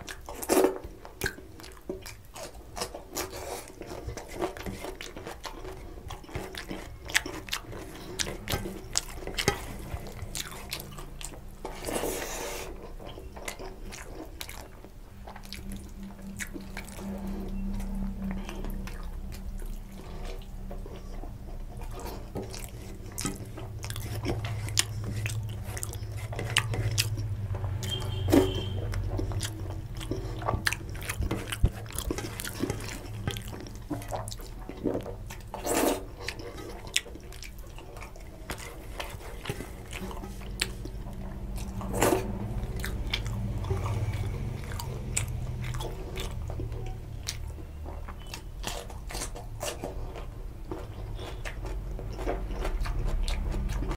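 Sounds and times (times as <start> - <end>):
wet chewing: 0.0 - 53.9
low hum: 14.6 - 35.4.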